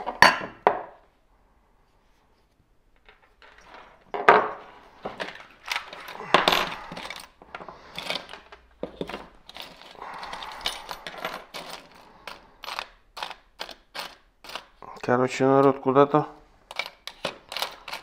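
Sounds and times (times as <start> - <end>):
metal parts and tools clinking: 3.0 - 14.8, 16.7 - 18.0.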